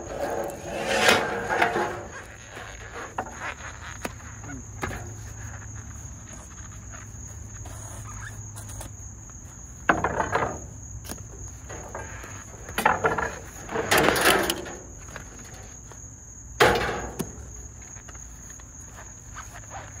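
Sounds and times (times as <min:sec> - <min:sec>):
metal scraping clatter: 0:00.0 - 0:02.3.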